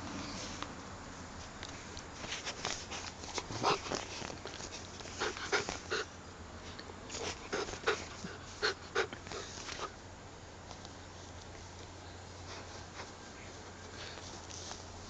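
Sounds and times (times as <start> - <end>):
puppy sniffing and huffing: 2.2 - 6.2, 7.1 - 10.0.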